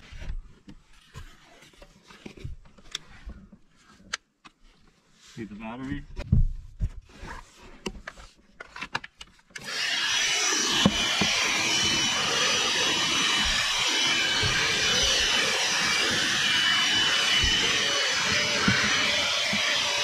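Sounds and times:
handheld vacuum cleaner running: 9.6s - 20.0s.

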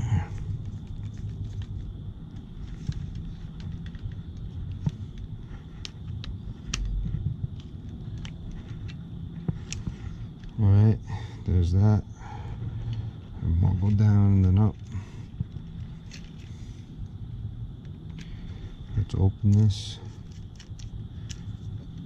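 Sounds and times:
steady low hum: 0.0s - 22.0s
small clicks and knocks: 0.3s - 10.6s, 13.8s - 16.7s, 19.4s - 22.0s.

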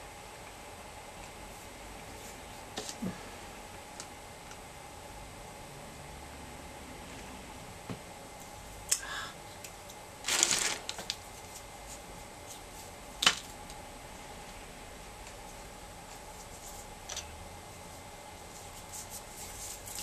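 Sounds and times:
rustling clatter of shells: 10.3s - 11.2s.

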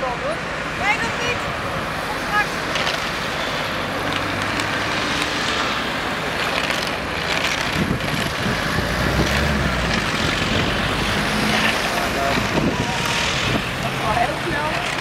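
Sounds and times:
cars driving past: 0.0s - 15.0s
road traffic: 0.0s - 15.0s.

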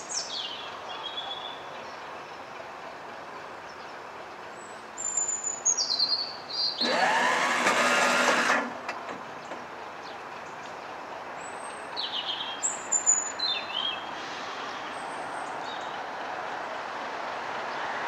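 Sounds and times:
birds chirping: 0.0s - 7.1s, 9.2s - 16.2s
locomotive air horn: 6.8s - 8.7s.

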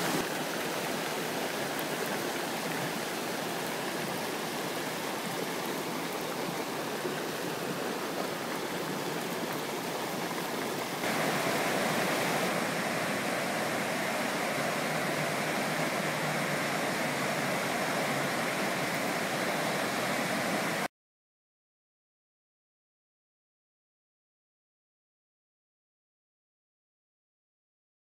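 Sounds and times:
floodwater rushing: 0.0s - 20.9s.

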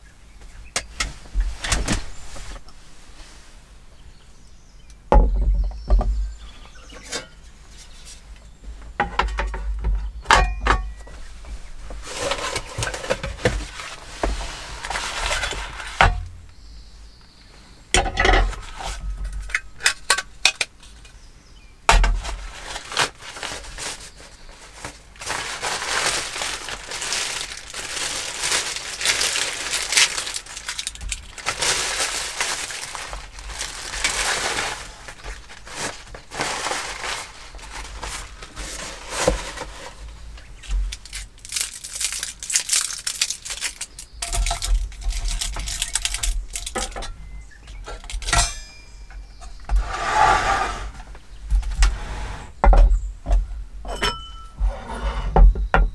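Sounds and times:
plastic bag crinkling: 22.5s - 40.2s, 40.8s - 47.0s.

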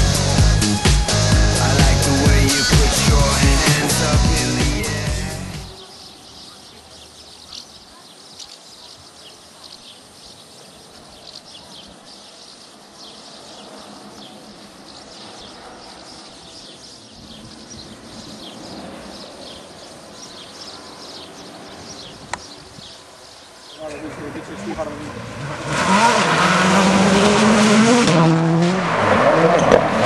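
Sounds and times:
small birds chirping: 2.0s - 25.0s
steady background hiss: 5.7s - 25.4s.

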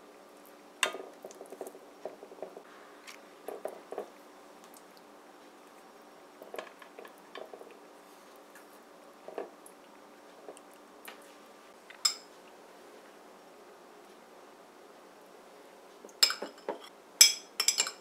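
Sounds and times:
spoon clinking on metal pan: 12.0s - 12.3s.

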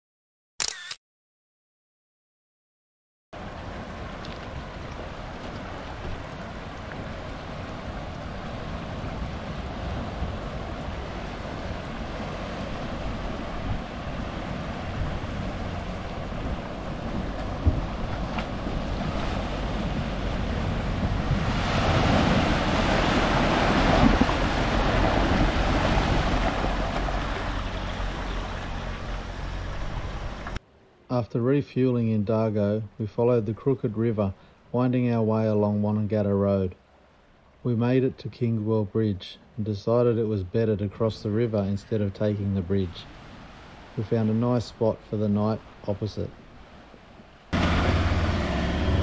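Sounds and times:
water rushing and splashing: 3.4s - 30.9s, 40.2s - 49.0s.

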